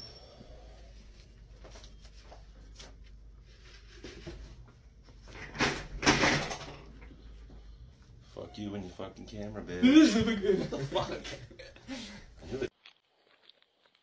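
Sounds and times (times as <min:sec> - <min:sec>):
office chair rattling and scraping: 0:05.2 - 0:07.0.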